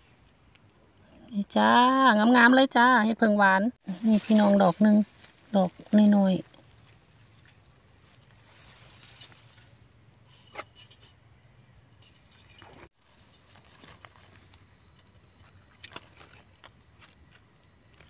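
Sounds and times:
insects calling high-pitched: 0.0 - 18.0
dry grass and leaves crackling: 3.8 - 9.8, 12.9 - 18.0.

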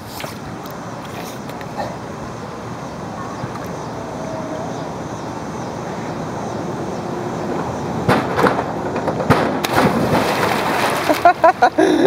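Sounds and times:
outdoor ambience: 0.0 - 12.0
diver splashing into pool: 9.6 - 11.6.

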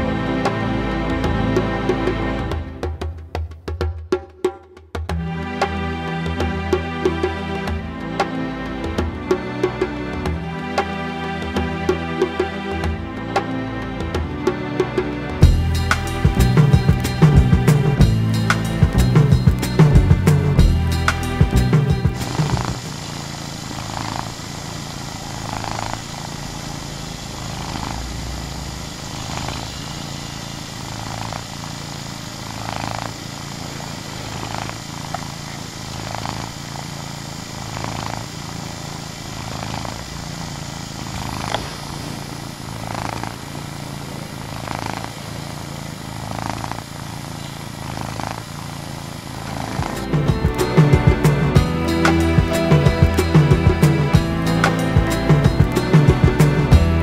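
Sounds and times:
cat purring: 15.4 - 57.0.

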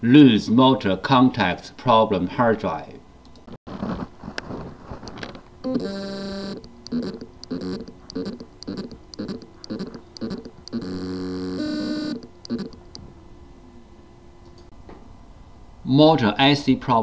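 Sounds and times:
hard drive buzzing: 5.1 - 14.7
hard drive click: 5.7 - 13.1.

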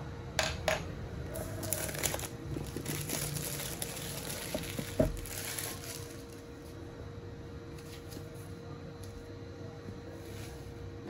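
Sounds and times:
plastic shrink wrap crinkling: 1.4 - 6.7.

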